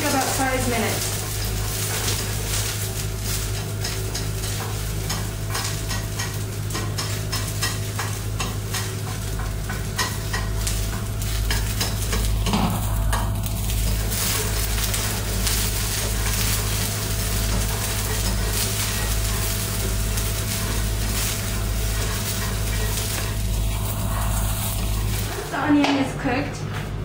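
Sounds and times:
onions sizzling in a frying pan: 0.0s - 26.5s
steady low hum: 0.0s - 27.0s
utensil clicking and scraping pan: 1.0s - 12.7s, 13.9s - 23.7s.

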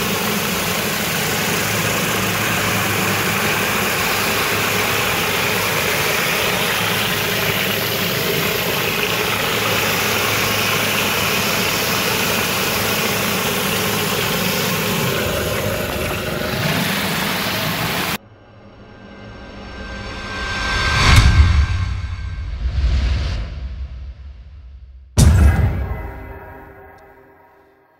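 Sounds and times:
pressure washer engine humming: 0.0s - 18.2s
water spray hissing: 0.0s - 18.2s.

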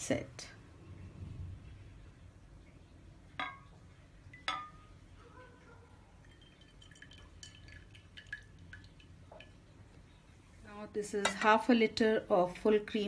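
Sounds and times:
metal pan clinking on glass dish: 3.4s - 4.9s, 11.2s - 11.6s
liquid pouring and dripping: 6.1s - 10.3s.

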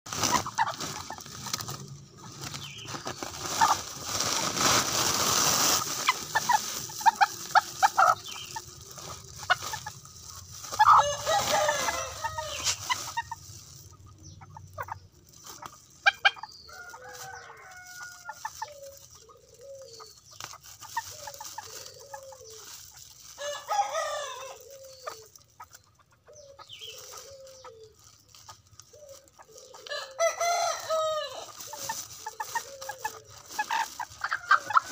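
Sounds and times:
sack rustling: 0.1s - 13.5s
chickens clucking: 0.1s - 34.9s
rooster crowing: 10.8s - 12.7s, 16.7s - 18.3s, 23.4s - 24.6s, 29.9s - 31.5s.

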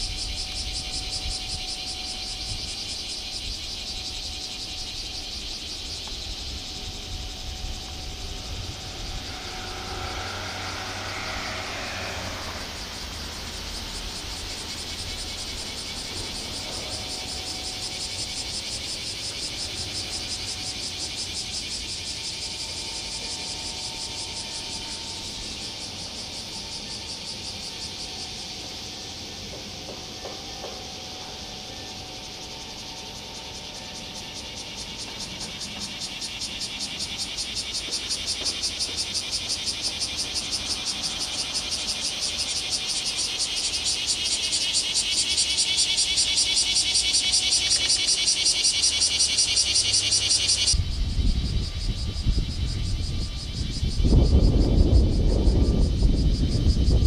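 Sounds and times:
insects buzzing: 0.0s - 57.0s
low rumble: 6.6s - 16.0s.

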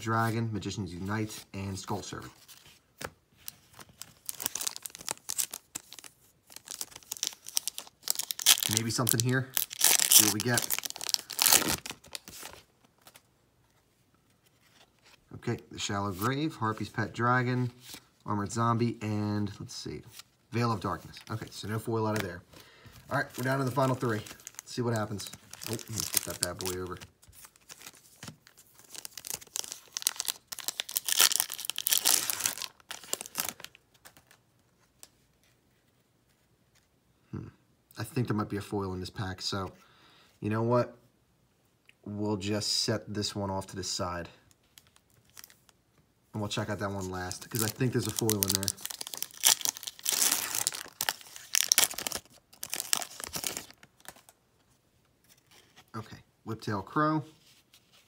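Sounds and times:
cards rustling: 1.0s - 18.1s, 19.9s - 36.9s, 46.4s - 56.0s
foil wrapper crinkling and tearing: 3.7s - 12.6s, 23.1s - 34.3s, 44.8s - 45.8s, 46.9s - 54.4s.

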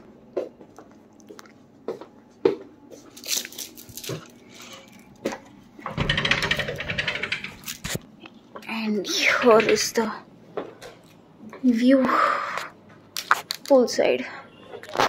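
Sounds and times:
sliding door rattling open: 5.9s - 8.0s, 9.2s - 10.1s.

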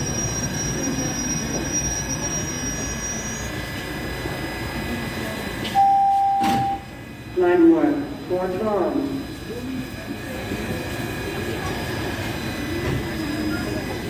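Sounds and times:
train brakes squealing: 0.0s - 4.6s
subway cars rumbling: 0.0s - 14.0s
electronic door beep: 5.7s - 6.9s.

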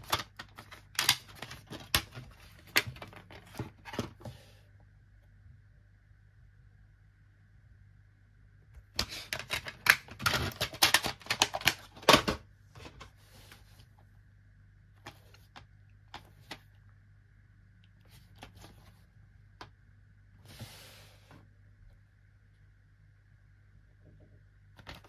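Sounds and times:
plastic dvd case clicks and rattles: 0.0s - 4.2s, 9.3s - 12.4s.

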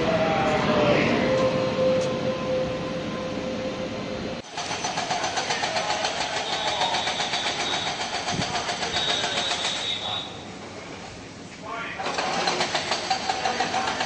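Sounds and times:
train hum: 0.0s - 14.0s
train wheels clattering on rails: 4.4s - 10.4s, 12.0s - 14.0s.

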